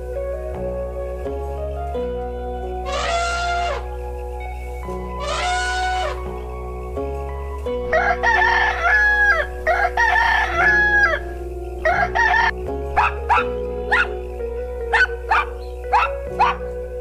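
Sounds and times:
rooster crowing: 2.8s - 3.9s, 5.2s - 6.3s, 7.9s - 14.1s
rooster short calls: 2.9s - 3.8s, 5.2s - 6.2s.

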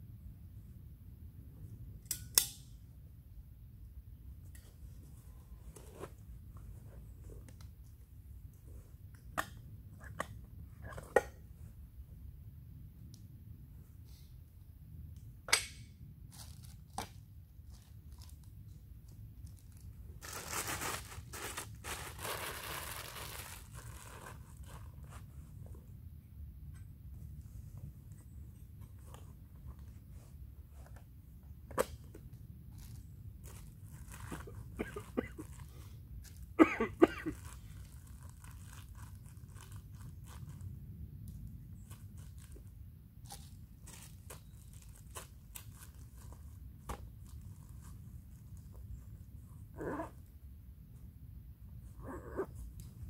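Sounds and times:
crinkling and rustling: 4.4s - 11.8s, 16.2s - 26.0s, 27.1s - 50.3s
plastic bag crinkling: 19.4s - 24.9s.

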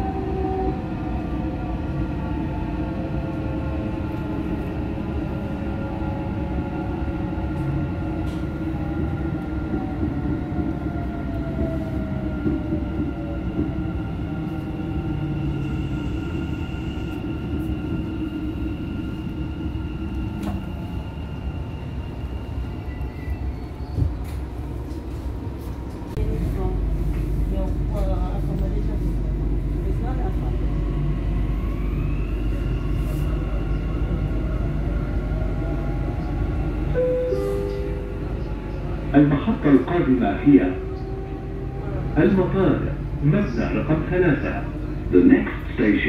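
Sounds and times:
train running rumble: 0.0s - 46.0s.

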